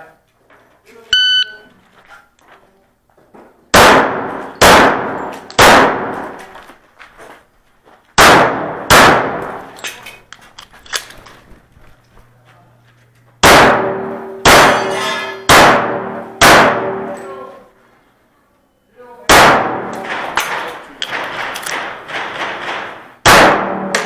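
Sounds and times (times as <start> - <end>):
loud echoing pistol shots: 3.7 - 6.4, 8.2 - 9.8, 13.4 - 14.9, 15.5 - 17.2, 19.3 - 24.0.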